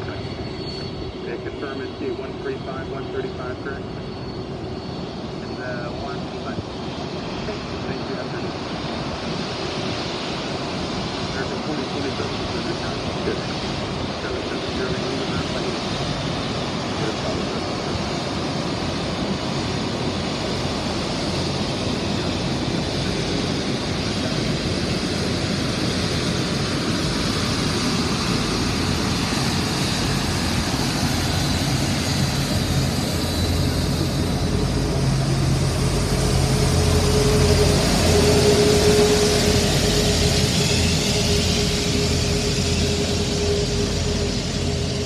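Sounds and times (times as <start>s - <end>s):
jet engine rumble and hiss: 0.0s - 45.0s.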